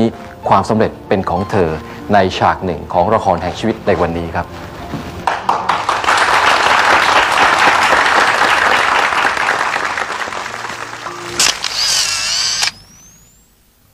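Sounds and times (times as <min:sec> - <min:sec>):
audience applauding: 0:05.2 - 0:11.7.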